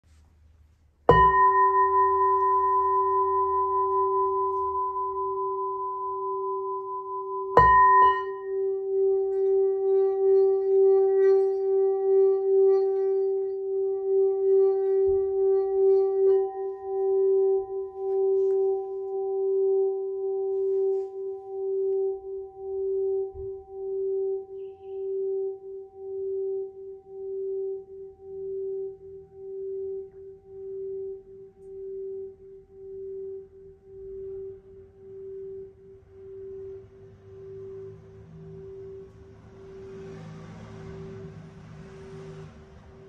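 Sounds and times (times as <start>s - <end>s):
singing bowl struck with mallet: 1.1s - 20.5s
singing bowl rim tone: 1.1s - 43.0s.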